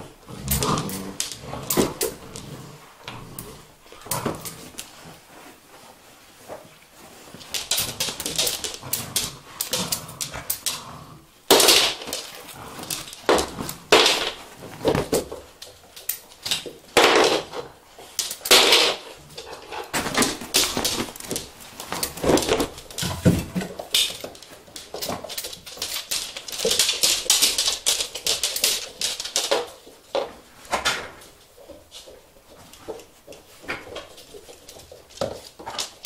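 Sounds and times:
dogs scuffling: 0.0s - 36.0s
dog claws clicking on floor: 0.3s - 5.5s, 7.1s - 36.0s.

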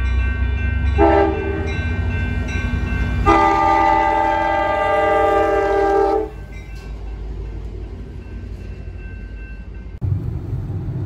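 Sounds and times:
low rumble of passing train: 0.0s - 11.0s
locomotive air horn blasts: 1.0s - 1.8s, 3.2s - 6.4s.

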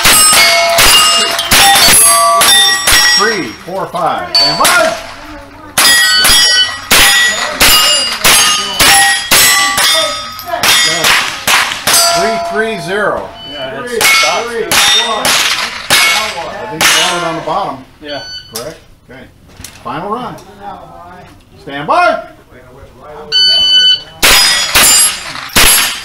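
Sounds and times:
steel target plates ringing: 0.0s - 5.2s, 5.8s - 18.6s, 23.6s - 26.0s
rifle shots: 24.2s - 26.0s.

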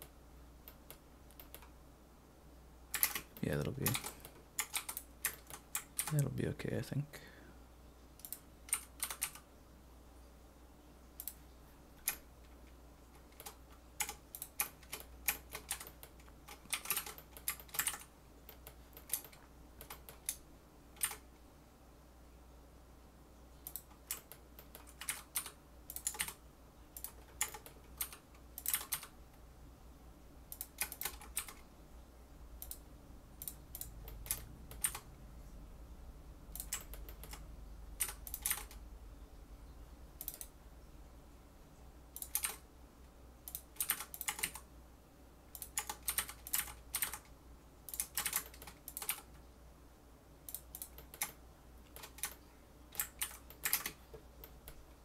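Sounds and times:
room fan humming: 0.0s - 55.0s
keyboard keys clicking: 2.9s - 6.3s, 8.2s - 9.4s, 13.2s - 20.4s, 21.0s - 21.2s, 23.6s - 26.4s, 27.0s - 29.1s, 30.5s - 31.6s, 33.4s - 35.1s, 36.5s - 37.4s, 38.0s - 38.8s, 40.2s - 40.5s, 42.2s - 42.6s, 43.5s - 44.6s, 45.6s - 47.3s, 47.9s - 49.3s, 50.5s - 52.4s, 53.0s - 54.8s.

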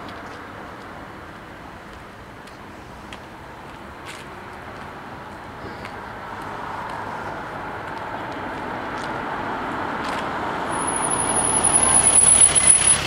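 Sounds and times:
car engine approaching: 3.2s - 13.0s
high-pitched whine: 10.6s - 13.0s.

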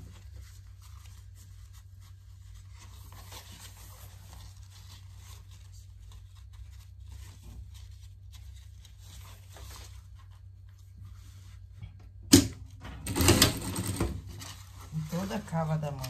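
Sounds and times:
fabric handling: 0.0s - 12.8s, 13.4s - 16.0s
low steady hum: 0.0s - 16.0s
rapid machine stitching: 13.0s - 14.2s.

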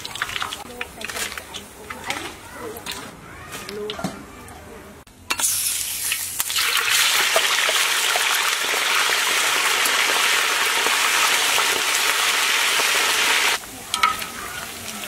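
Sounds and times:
food sizzling in hot oil: 5.3s - 15.0s.

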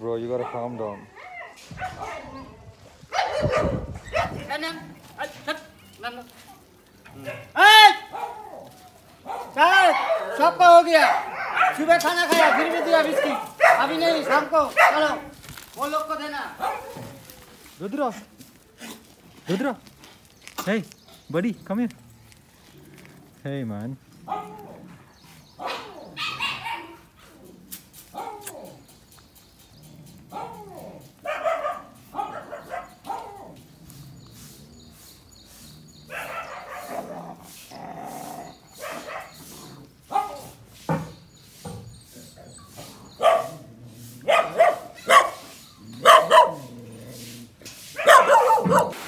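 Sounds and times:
dogs barking: 0.2s - 4.7s, 7.1s - 15.4s, 16.4s - 17.4s, 24.2s - 27.4s, 28.1s - 28.8s, 30.0s - 33.9s, 36.0s - 40.7s, 42.3s - 49.0s.

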